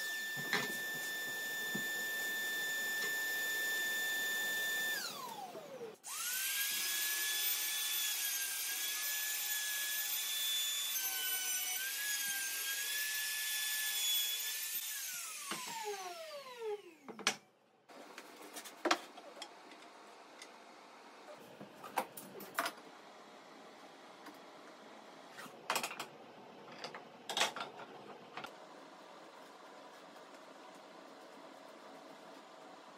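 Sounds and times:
router whining while routing wood: 0.0 - 17.2
router winding down: 0.1 - 6.8.

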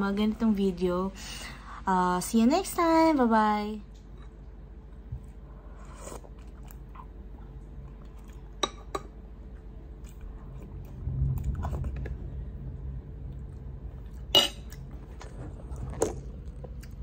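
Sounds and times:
person chewing: 5.3 - 12.2, 13.3 - 17.0.

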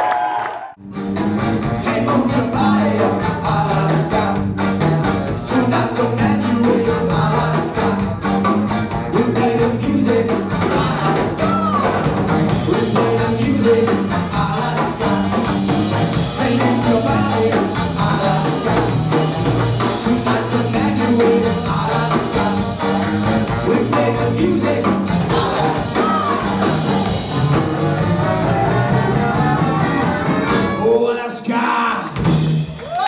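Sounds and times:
live rock band playing: 0.8 - 31.2, 32.1 - 33.0
drum beat: 1.7 - 30.8
person singing: 1.8 - 4.8, 5.4 - 8.1, 12.6 - 15.5, 16.3 - 22.9, 23.6 - 27.1.

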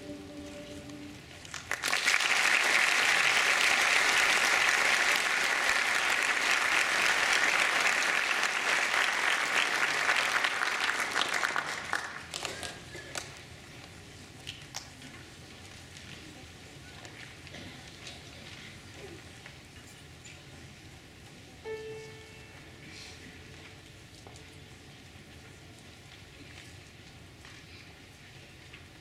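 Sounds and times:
choir singing final chord: 0.0 - 1.6
audience applauding: 1.4 - 13.3.

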